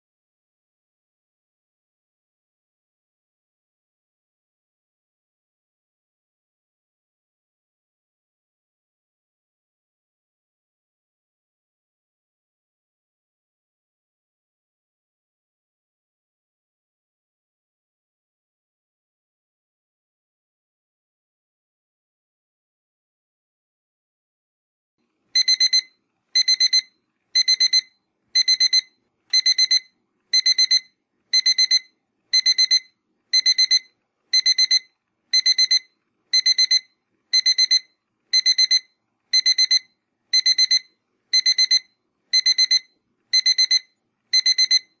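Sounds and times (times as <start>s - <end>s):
timer alarm beeping: 25.4s - 45.0s.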